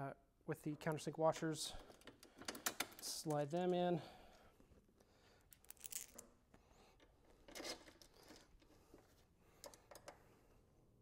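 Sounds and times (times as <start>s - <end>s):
metal bolts clicking and scraping: 7.0s - 8.7s.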